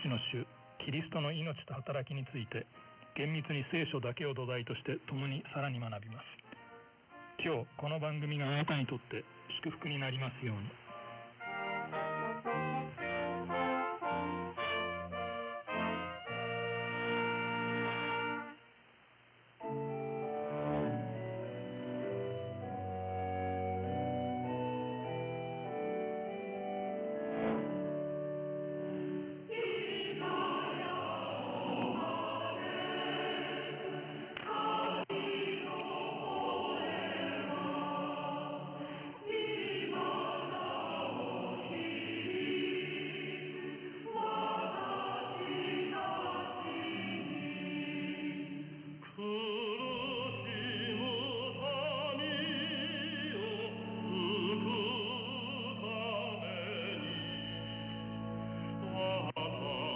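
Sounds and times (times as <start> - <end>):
radio static hiss: 0.0 - 14.3, 17.4 - 23.7
choir singing sacred music: 9.8 - 18.6, 19.6 - 59.9.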